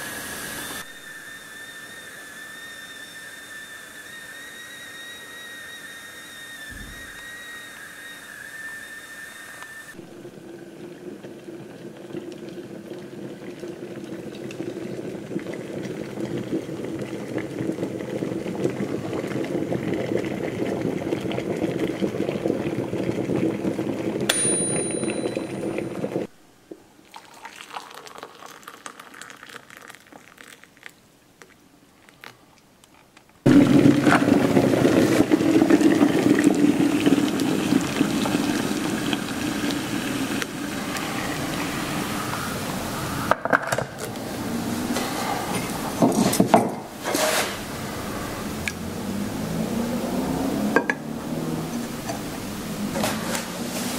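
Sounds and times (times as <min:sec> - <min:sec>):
electric kettle heating water: 0:00.0 - 0:26.3, 0:27.0 - 0:30.9, 0:33.5 - 0:53.9
high whistle-like tone: 0:00.1 - 0:10.0, 0:41.0 - 0:43.4
water poured into a glass: 0:27.0 - 0:30.9.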